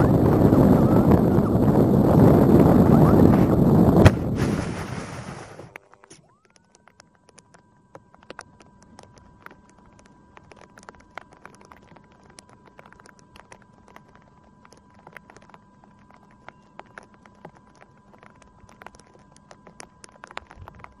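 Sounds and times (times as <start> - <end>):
faint steady high tone: 5.7 - 21.0
raindrops tapping on plastic: 5.7 - 21.0.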